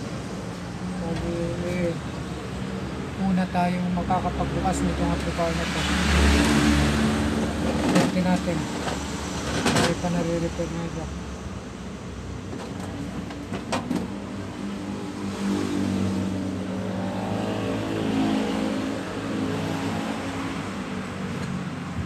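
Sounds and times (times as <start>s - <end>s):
vehicle engine accelerating: 14.6s - 21.0s.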